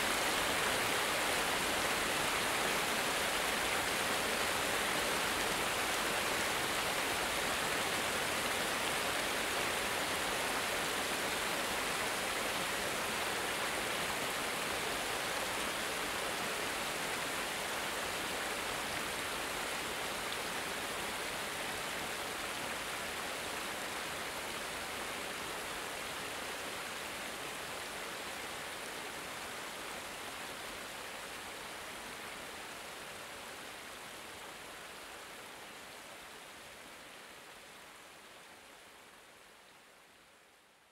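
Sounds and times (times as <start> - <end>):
water cascade rushing: 0.0 - 32.5.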